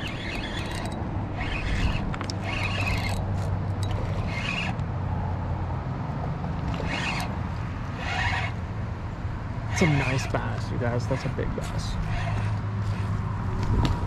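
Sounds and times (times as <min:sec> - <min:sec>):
fishing reel whirring: 0:00.0 - 0:04.8, 0:06.6 - 0:08.6, 0:09.7 - 0:13.2.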